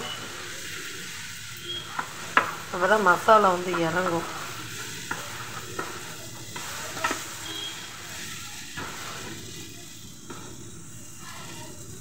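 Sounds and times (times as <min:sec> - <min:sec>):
spatula scraping frying pan: 0:00.0 - 0:10.6
light sizzle: 0:00.0 - 0:12.0
spatula knocking on pan: 0:02.0 - 0:02.6.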